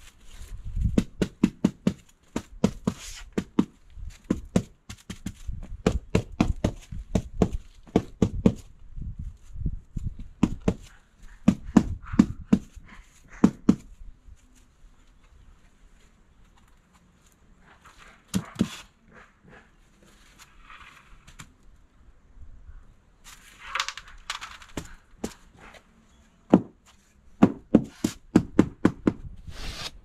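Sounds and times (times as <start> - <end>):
rapid knocks and thuds: 0.8 - 8.7, 10.4 - 12.8.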